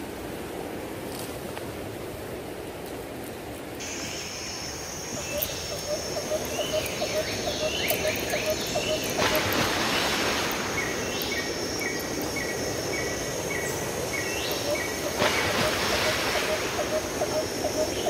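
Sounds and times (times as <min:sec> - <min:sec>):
surf on rocky shore: 0:00.0 - 0:18.0
birds calling: 0:03.8 - 0:18.0
low chirping pulse: 0:03.8 - 0:18.0.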